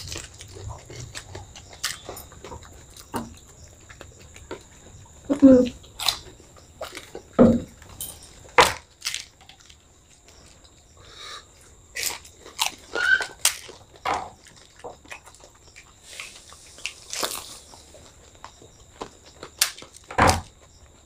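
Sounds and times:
crunchy snack being chewed: 0:00.0 - 0:21.0.

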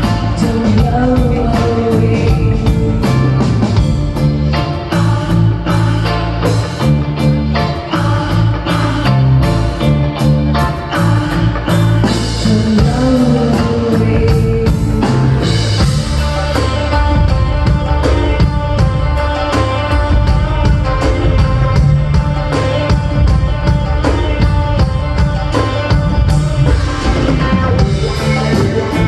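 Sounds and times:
woman singing: 0:00.0 - 0:03.8, 0:10.6 - 0:16.7
live rock band playing: 0:00.0 - 0:29.0.

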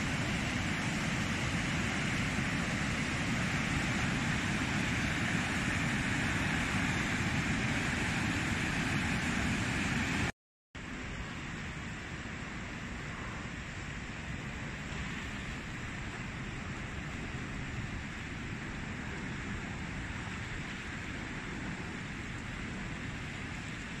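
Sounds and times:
river water rushing: 0:00.0 - 0:10.3.

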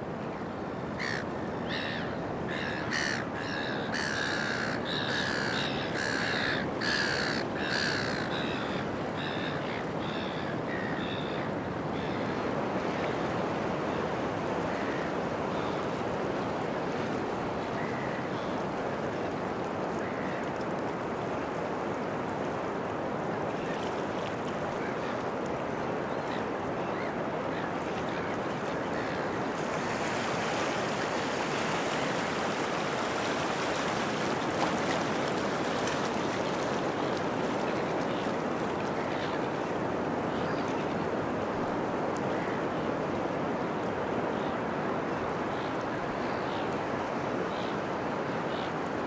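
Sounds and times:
ocean surf: 0:00.0 - 0:49.0
bird calling: 0:01.0 - 0:11.4.

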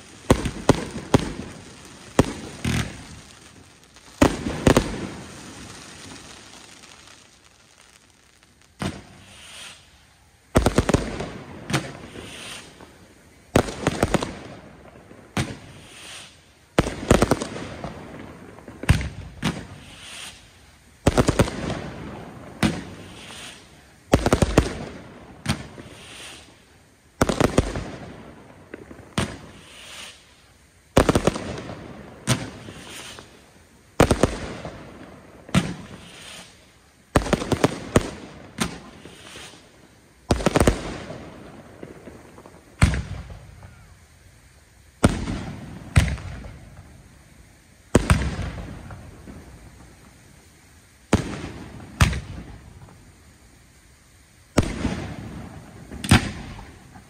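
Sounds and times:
fireworks bangs echoing: 0:00.0 - 0:26.6, 0:27.2 - 0:30.2, 0:30.9 - 0:33.4, 0:34.0 - 0:44.0, 0:45.0 - 0:47.0, 0:47.9 - 0:50.2, 0:51.1 - 0:53.0, 0:54.5 - 0:57.0.

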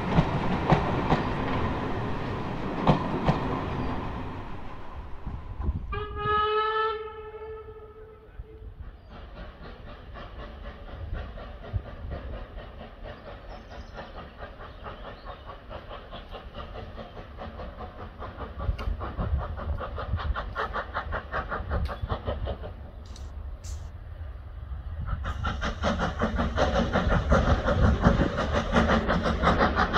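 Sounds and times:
steam locomotive exhaust beats: 0:00.0 - 0:29.9.

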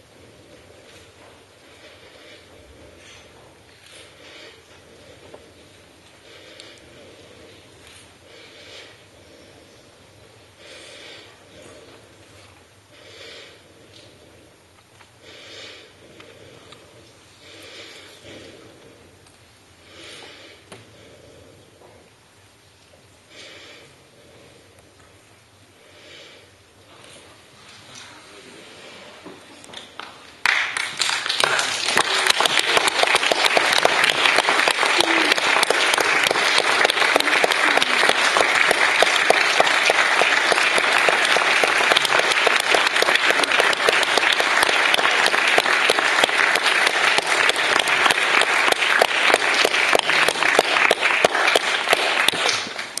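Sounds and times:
audience applause: 0:29.8 - 0:53.0.

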